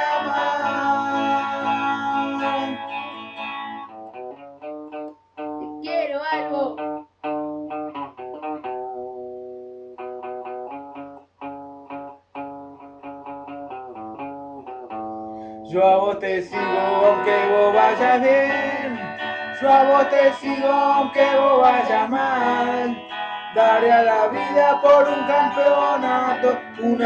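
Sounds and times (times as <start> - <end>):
electric guitar melody: 0.0 - 27.0.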